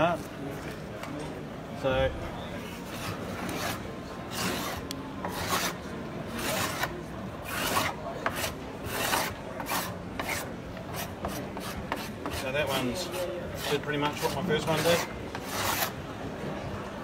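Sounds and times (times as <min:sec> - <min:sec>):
rasping scrubbing on wooden door: 0:02.9 - 0:16.0.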